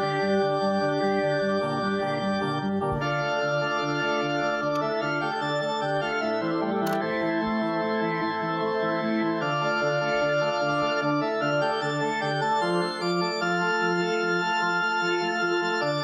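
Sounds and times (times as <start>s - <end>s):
instrumental music with held chords: 0.0s - 16.0s.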